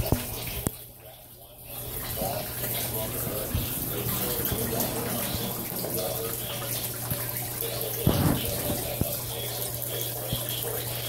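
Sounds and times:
water swirling and splashing: 1.7 - 10.9
low hum: 1.8 - 7.8.

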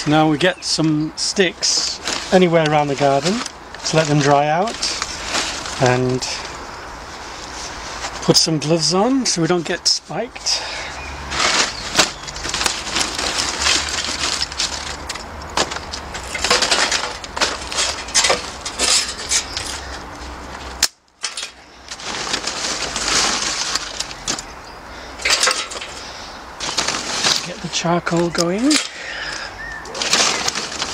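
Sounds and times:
twigs rustling in paper sack: 0.0 - 30.9
wood clattering into metal: 11.3 - 19.8, 20.8 - 24.5, 25.2 - 29.0, 30.0 - 30.9.

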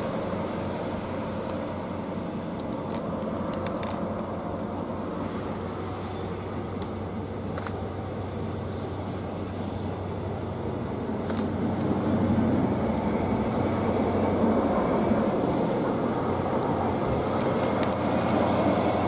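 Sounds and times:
train wheels rumbling on rail: 0.0 - 19.0.

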